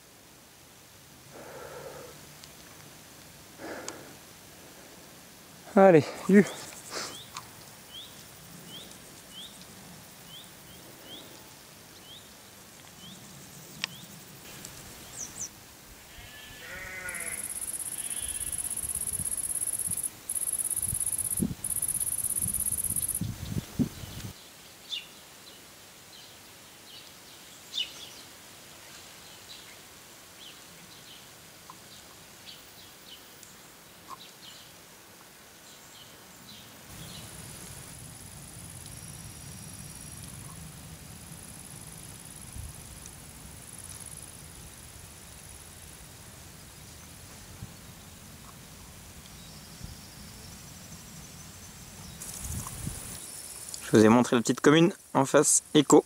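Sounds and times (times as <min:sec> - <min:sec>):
wavering animal bleat: 0:16.0 - 0:18.8
loud high insect buzz: 0:16.0 - 0:24.0
bird chirping: 0:17.4 - 0:24.3.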